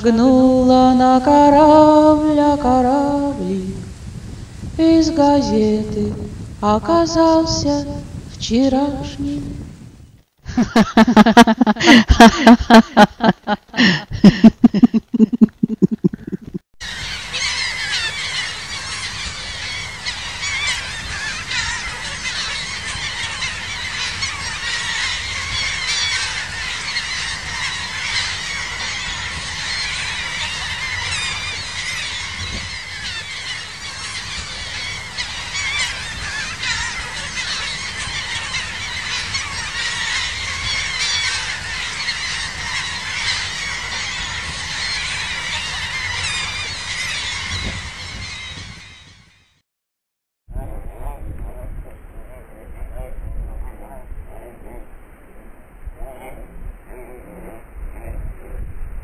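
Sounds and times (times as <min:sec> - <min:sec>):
flock of birds calling: 0:10.6 - 0:49.3.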